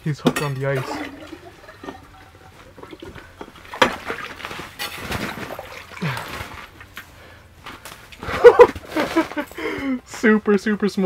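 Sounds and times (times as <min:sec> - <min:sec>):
water splashing and sloshing: 0:00.2 - 0:09.5
handling noises: 0:01.9 - 0:10.3.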